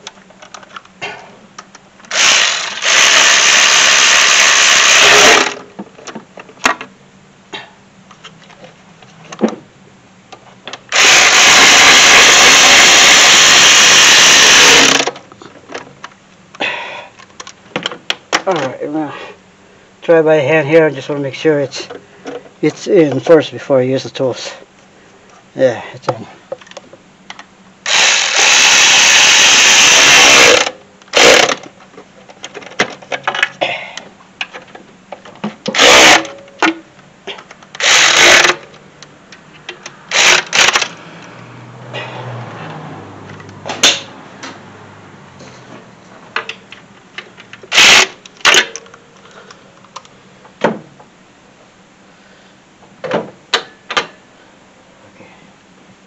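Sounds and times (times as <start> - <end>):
cordless ratchet running in bursts: 2.1 - 5.6, 10.9 - 15.1, 27.8 - 31.6, 35.8 - 36.3, 37.8 - 38.6, 40.1 - 40.9, 47.7 - 48.2.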